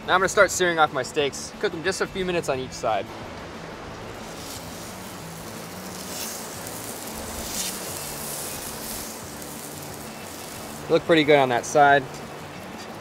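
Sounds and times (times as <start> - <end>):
fish searing on a hot griddle: 3.6 - 13.0.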